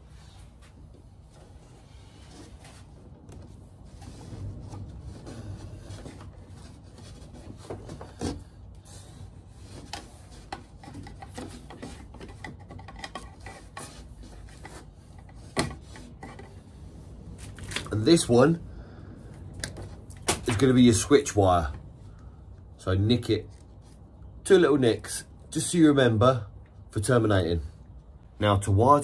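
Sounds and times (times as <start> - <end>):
cable sheath rubbing and scraping: 1.4 - 18.2.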